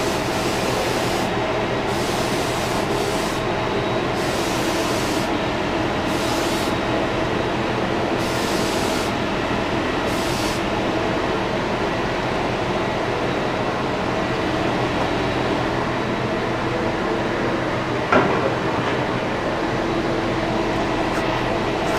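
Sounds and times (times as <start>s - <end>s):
air spray gun hissing: 0.0s - 5.4s, 6.0s - 6.8s, 8.2s - 9.2s, 10.0s - 10.7s.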